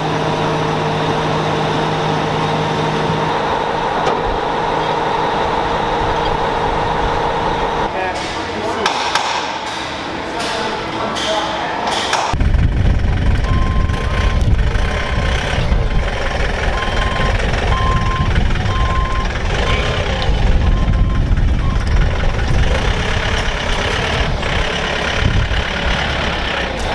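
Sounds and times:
forklift engine running: 0.0 - 8.8, 9.4 - 26.9
reversing alarm beeping: 13.4 - 15.3, 16.7 - 22.0.

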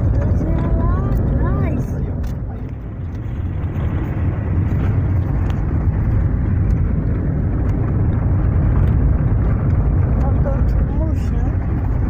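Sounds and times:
car rumbling on dirt road: 0.0 - 12.0.

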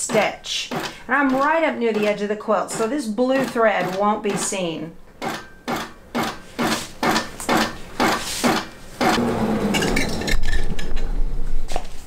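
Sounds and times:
continuous machine sound: 0.0 - 4.6
quilting machine needle knocking: 0.1 - 9.2.

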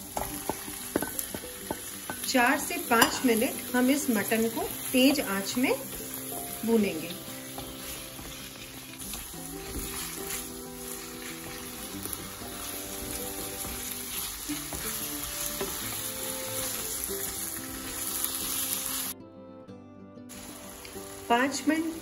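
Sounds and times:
meat sizzling in oil: 0.0 - 19.2, 20.3 - 22.0
soft background music: 0.0 - 22.0
wooden spatula stirring: 5.1 - 18.1.

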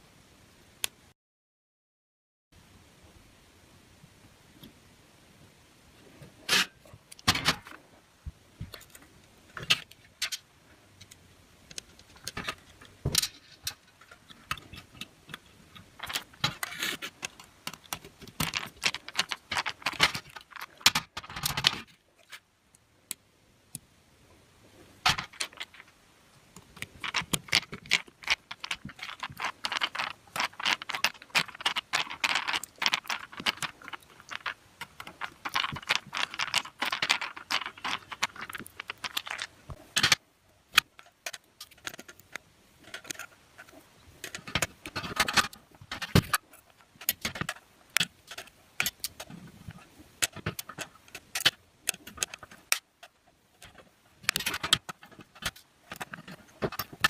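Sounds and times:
metal parts and tools rattling: 11.8 - 22.4, 25.0 - 25.9, 26.8 - 57.0.

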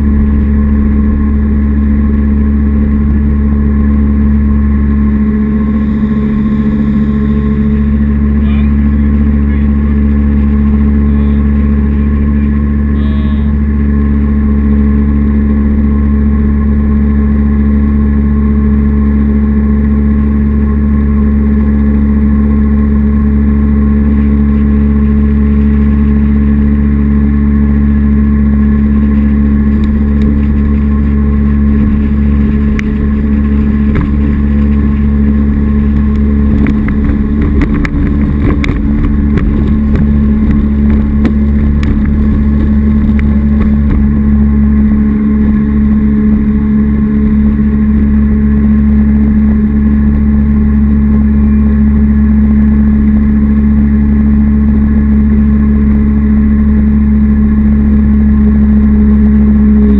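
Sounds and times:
jet boat engine drone: 0.0 - 59.9
water slapping against hull: 29.7 - 45.3.

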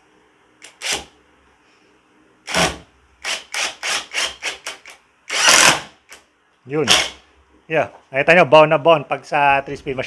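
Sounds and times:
impact driver bursts: 2.5 - 6.2, 6.9 - 7.2.

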